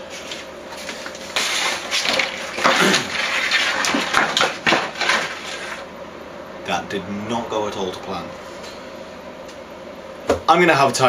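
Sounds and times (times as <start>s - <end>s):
wood veneer sheets rustling and knocking: 0.2s - 5.9s.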